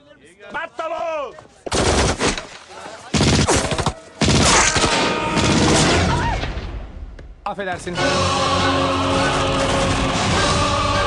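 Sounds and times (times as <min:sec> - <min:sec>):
rapid gunfire bursts: 0:03.1 - 0:06.0.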